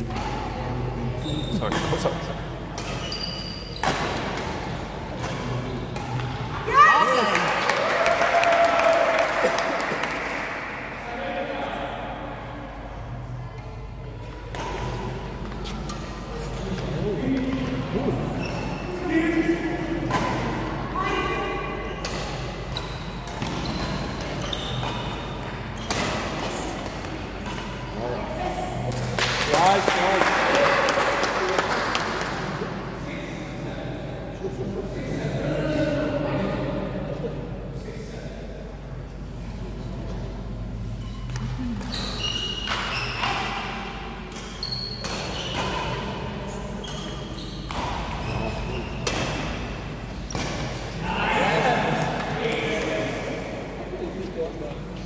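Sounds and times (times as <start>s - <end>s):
shoes squeaking on court floor: 1.2s - 6.6s, 18.3s - 19.0s, 21.8s - 27.9s, 40.8s - 43.7s, 44.4s - 50.5s
rackets hitting shuttlecock: 3.8s - 6.5s, 42.6s - 46.0s.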